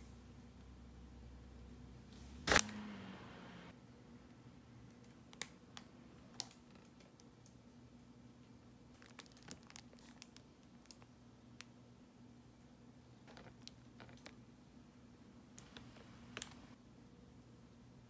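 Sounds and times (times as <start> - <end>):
packaging clicks and crinkles: 8.9 - 11.7.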